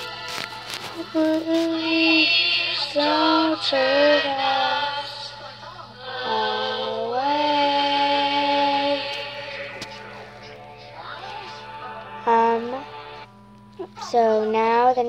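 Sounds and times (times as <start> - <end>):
girl singing held notes: 0.8 - 5.2.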